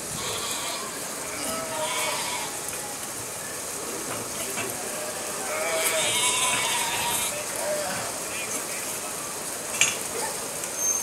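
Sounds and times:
sheep bleating: 0:00.2 - 0:02.6, 0:05.5 - 0:07.4.

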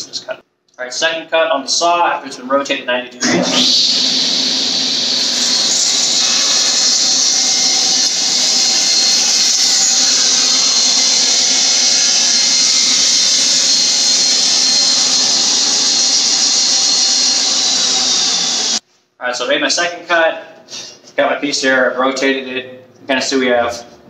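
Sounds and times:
table saw whining: 0:03.2 - 0:18.8.

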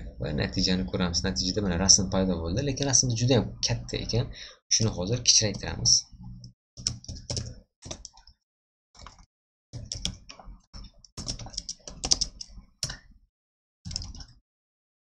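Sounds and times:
computer keyboard typing: 0:06.8 - 0:08.4, 0:09.0 - 0:13.0, 0:13.9 - 0:14.3.

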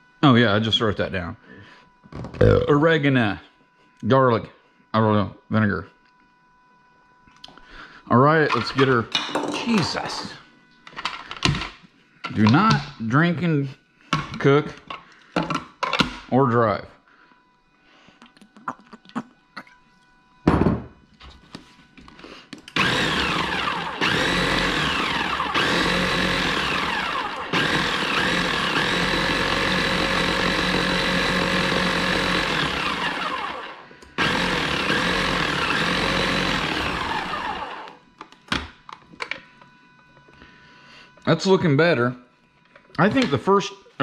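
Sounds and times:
blender motor running: 0:22.2 - 0:38.0.

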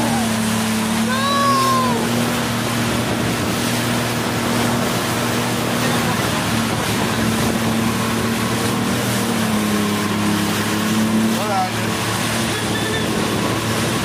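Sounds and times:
jet ski engine running: 0:00.0 - 0:14.0.

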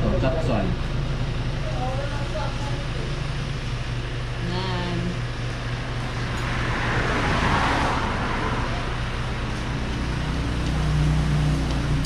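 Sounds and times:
steady low hum: 0:00.0 - 0:12.0
vehicle passing: 0:05.7 - 0:12.0.

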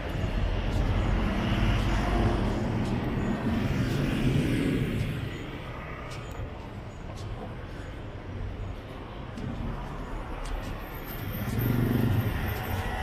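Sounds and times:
street traffic noise: 0:00.0 - 0:13.0.

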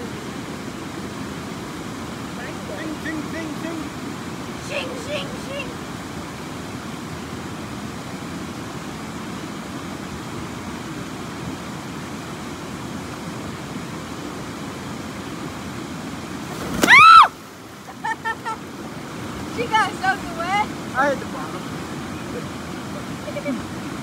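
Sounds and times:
creek water rushing: 0:00.0 - 0:24.0
person whooping: 0:16.8 - 0:17.3.

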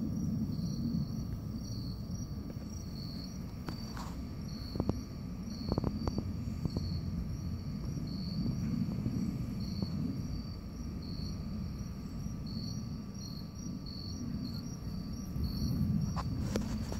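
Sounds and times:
insects chirping: 0:00.0 - 0:16.9
low rumbling noise: 0:00.0 - 0:16.9.

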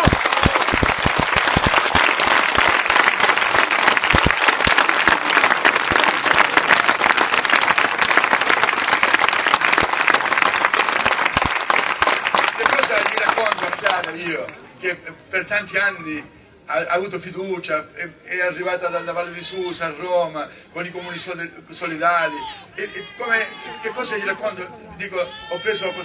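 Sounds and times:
large crowd applauding: 0:00.0 - 0:14.5.

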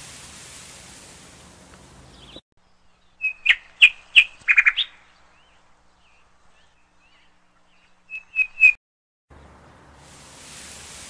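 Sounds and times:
bird chirping: 0:01.8 - 0:10.0.

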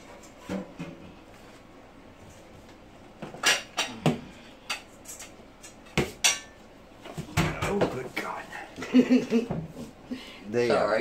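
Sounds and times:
cookware clanking: 0:05.8 - 0:06.6.

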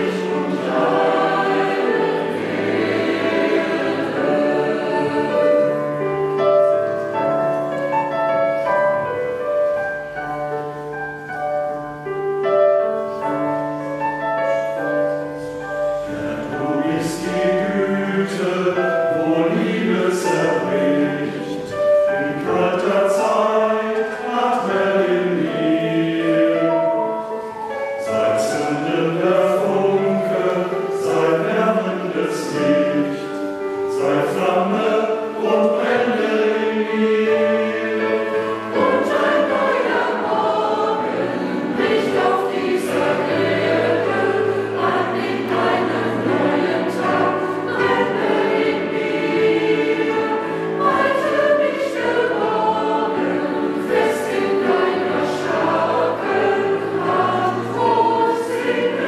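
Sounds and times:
choir singing a hymn: 0:00.0 - 0:59.0.

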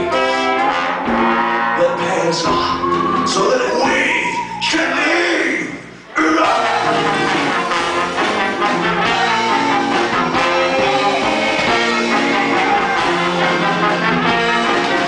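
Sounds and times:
drums: 0:00.0 - 0:04.6, 0:05.6 - 0:15.0
guitar: 0:00.0 - 0:15.0
horns: 0:00.0 - 0:15.0
accordion: 0:06.6 - 0:15.0.

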